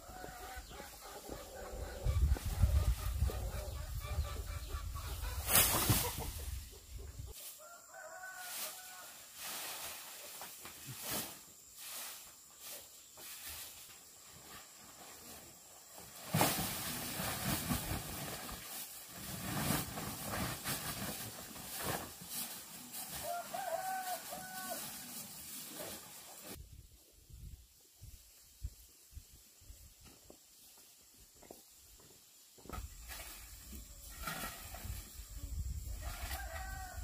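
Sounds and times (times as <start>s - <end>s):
chickens clucking: 0.0s - 7.4s.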